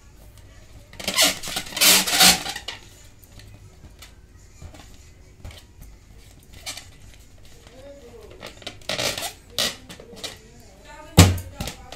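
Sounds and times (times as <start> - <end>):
hands rubbing balloons: 0.9 - 10.4.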